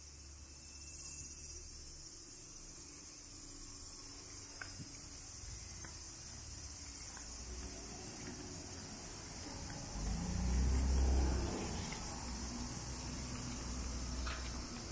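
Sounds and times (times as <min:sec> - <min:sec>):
cicadas shrilling: 0:00.0 - 0:14.9
faint ticks: 0:04.3 - 0:14.9.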